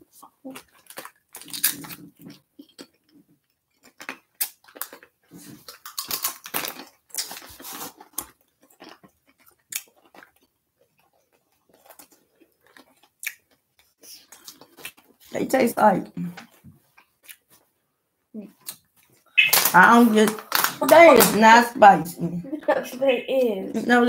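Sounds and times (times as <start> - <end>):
potato chips crunching: 0.5 - 15.1, 18.6 - 21.4.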